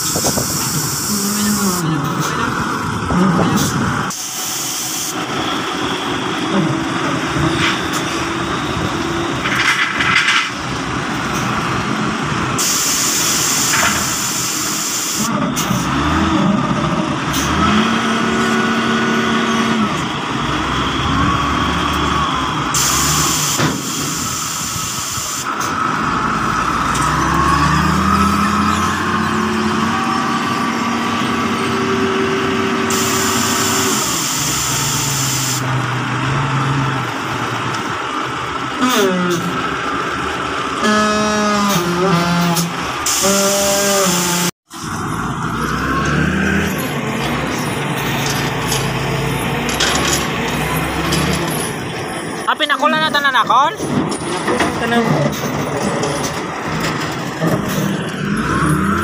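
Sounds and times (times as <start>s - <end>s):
forklift engine revving: 0.0s - 53.2s, 53.8s - 59.0s
high hiss bursts: 32.9s - 35.6s.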